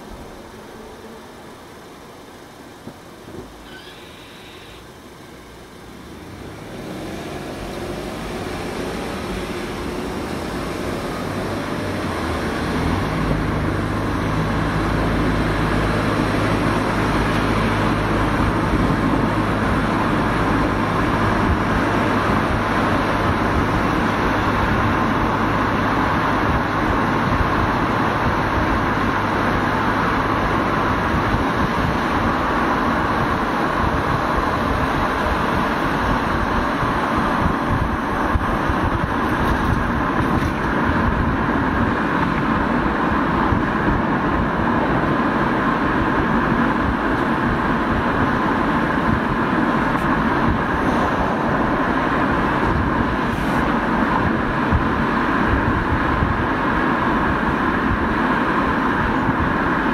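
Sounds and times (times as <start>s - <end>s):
low engine hum: 0.0s - 59.9s
road noise: 0.0s - 59.9s.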